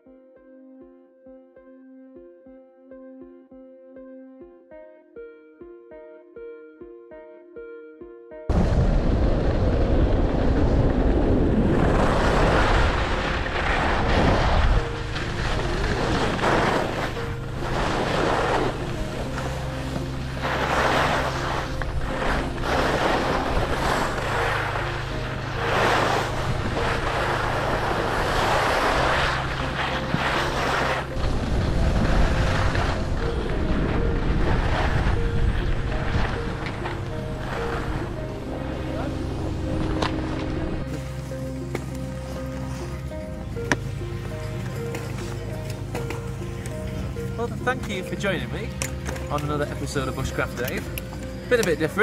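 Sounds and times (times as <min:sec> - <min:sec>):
wind rushing over microphone: 0:08.5 - 0:19.2, 0:20.6 - 0:40.9
skis scraping on packed snow: 0:09.5 - 0:50.9.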